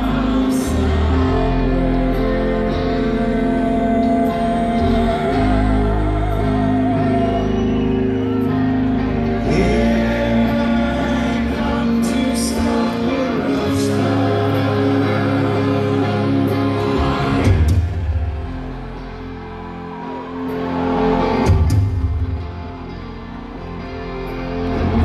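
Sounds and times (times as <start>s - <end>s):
male vocals: 0.0s - 7.8s, 9.2s - 19.0s
bass guitar: 0.0s - 25.0s
electric guitar: 0.0s - 25.0s.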